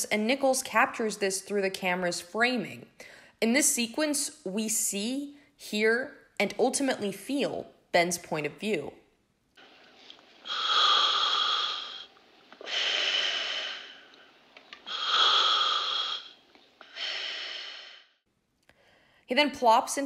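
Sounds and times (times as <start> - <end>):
breathing through scuba regulator: 10.4 - 18.2.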